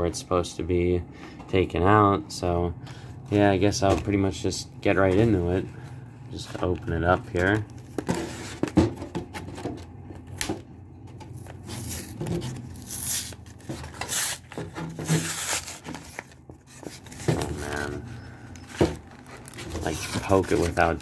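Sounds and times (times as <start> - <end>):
cardboard packaging tearing: 11.3 - 17.6, 19.0 - 21.0.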